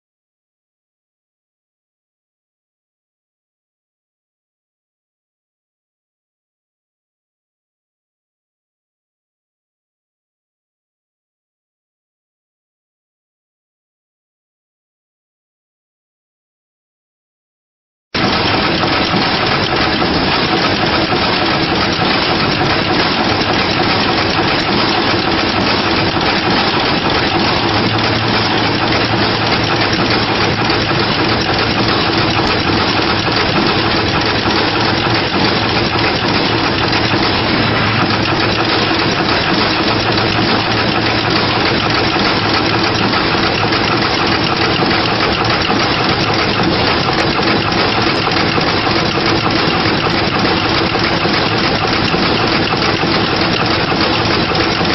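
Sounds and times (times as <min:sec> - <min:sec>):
machine running with mechanical din: 0:18.2 - 0:54.9.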